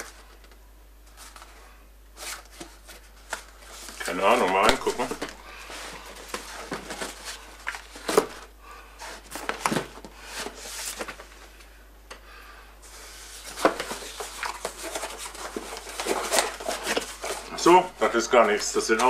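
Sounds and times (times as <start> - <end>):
cardboard rustling and scraping: 2.2 - 11.5, 12.8 - 19.0.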